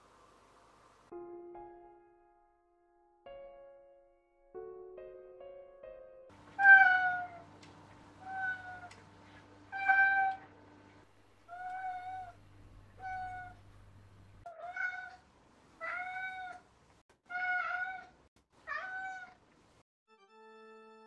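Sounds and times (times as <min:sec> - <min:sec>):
cat meowing: 0:06.6 - 0:07.4, 0:08.2 - 0:09.0, 0:09.7 - 0:10.5, 0:11.5 - 0:13.7, 0:14.4 - 0:15.2, 0:15.8 - 0:16.6, 0:17.3 - 0:19.4.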